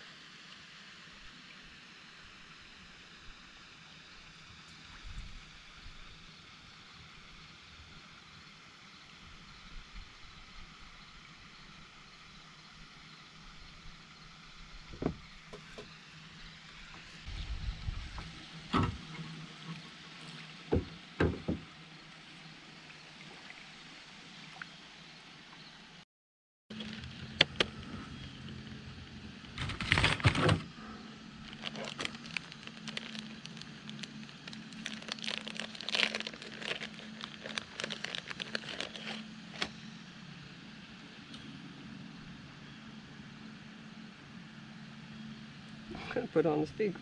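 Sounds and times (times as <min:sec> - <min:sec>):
background hiss on water: 0:00.0 - 0:26.0, 0:26.7 - 0:47.0
knocks against plastic kayak hull: 0:20.7 - 0:21.6.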